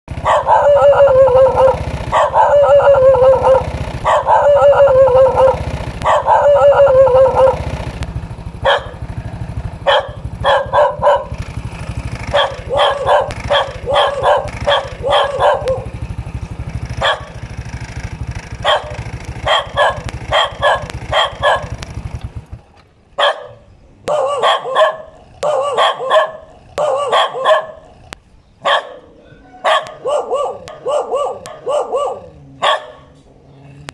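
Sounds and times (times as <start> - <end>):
dog barking: 0.2 - 7.7, 8.6 - 9.1, 9.8 - 11.4, 12.3 - 16.0, 17.0 - 17.4, 18.6 - 21.8, 23.2 - 27.9, 28.6 - 33.2.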